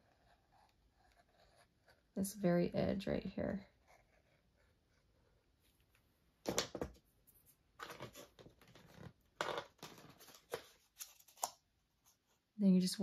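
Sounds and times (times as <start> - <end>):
paper rustling and crinkling: 9.8 - 11.6.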